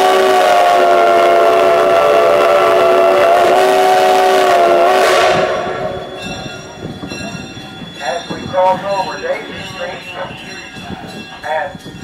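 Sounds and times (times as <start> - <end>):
train horn chord: 0.0 - 5.9
rumble of rolling train cars: 0.0 - 12.0.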